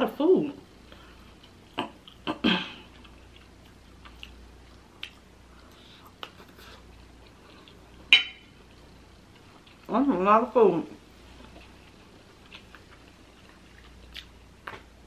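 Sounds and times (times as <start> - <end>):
chewing noodles: 0.9 - 8.0, 11.3 - 14.9
metal fork clinking on plate: 8.2 - 8.5.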